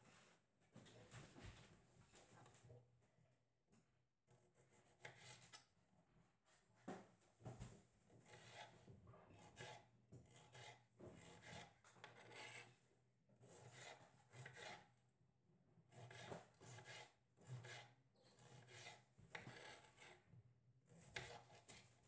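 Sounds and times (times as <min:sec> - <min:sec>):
knife slicing on cutting board: 0:04.8 - 0:05.5, 0:08.3 - 0:08.7, 0:09.4 - 0:12.7, 0:13.5 - 0:14.9, 0:15.9 - 0:20.2, 0:20.9 - 0:21.8.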